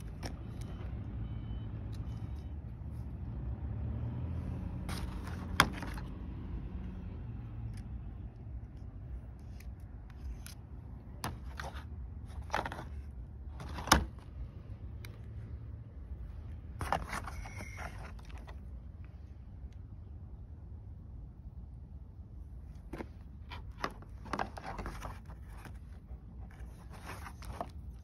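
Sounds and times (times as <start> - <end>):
rustling and scraping plastic: 0.0 - 1.0, 4.7 - 6.3, 7.7 - 14.5, 16.6 - 18.8, 22.7 - 28.0.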